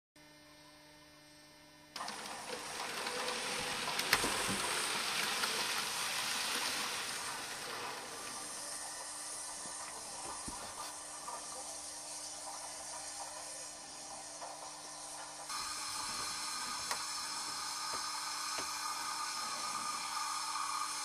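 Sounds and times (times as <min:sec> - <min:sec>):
faint mains hum: 0:00.2 - 0:05.8
model train whirring on track: 0:02.0 - 0:21.0.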